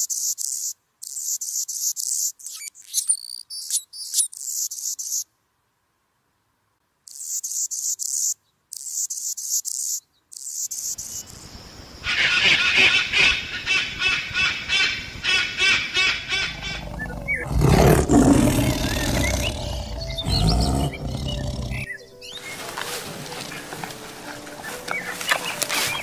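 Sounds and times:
high-pitched animal chirping: 0:00.1 - 0:05.2
rhythmic animal calls: 0:15.3 - 0:26.0
tiger roar: 0:16.3 - 0:22.0.

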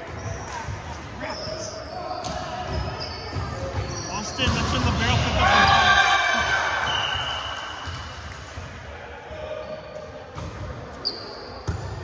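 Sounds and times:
players' voices in gymnasium: 0:00.0 - 0:12.0
referee's whistle: 0:06.8 - 0:08.0.

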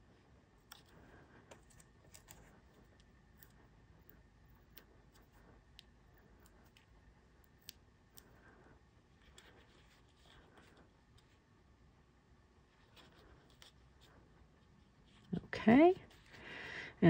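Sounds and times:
small paper clicks and ticks: 0:00.6 - 0:08.4.

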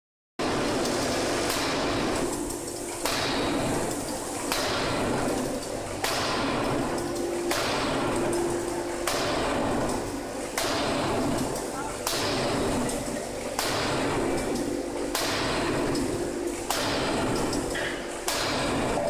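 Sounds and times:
machine hum: 0:00.4 - 0:19.0
hiss: 0:00.5 - 0:06.7
forging hammer heavy blows: 0:03.0 - 0:03.8, 0:04.5 - 0:05.3, 0:06.0 - 0:06.8, 0:07.5 - 0:08.2, 0:09.0 - 0:09.8, 0:10.6 - 0:11.4, 0:12.0 - 0:12.9, 0:13.6 - 0:14.4, 0:15.1 - 0:16.0, 0:16.7 - 0:19.0.

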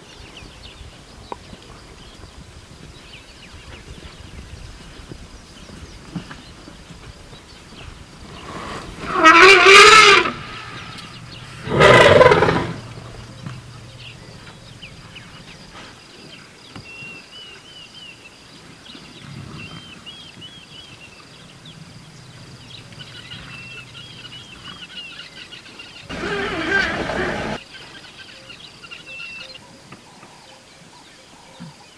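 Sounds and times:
elephant trumpeting: 0:08.5 - 0:15.5, 0:26.1 - 0:27.6.

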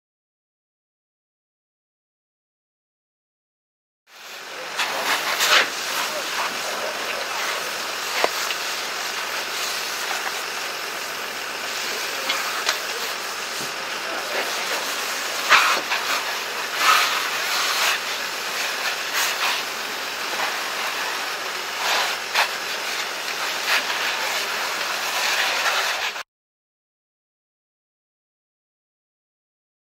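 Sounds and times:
water spray hissing on fire: 0:04.1 - 0:26.2
pops and cracks from burning vehicle: 0:04.4 - 0:26.2.

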